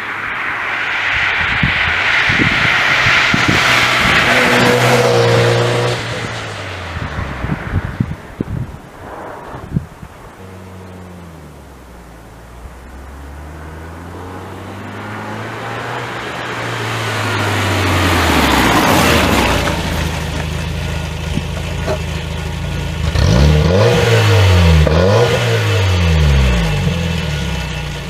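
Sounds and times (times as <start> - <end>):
engine revving: 1.1 - 8.1, 9.3 - 28.0
pickup truck driving past: 8.8 - 23.1.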